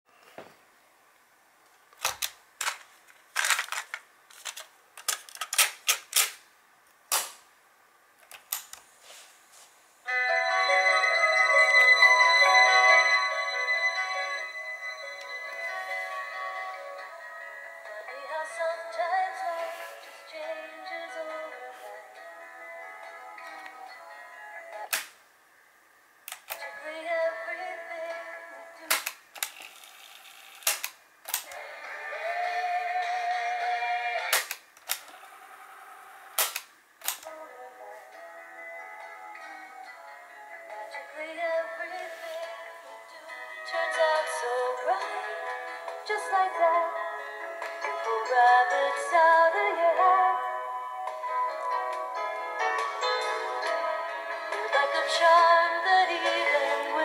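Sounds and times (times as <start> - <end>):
music playing: 10.1 - 24.9, 31.6 - 34.3, 37.3 - 57.0
song through small speaker: 10.1 - 24.9, 26.5 - 29.0, 31.5 - 34.5, 37.2 - 57.0.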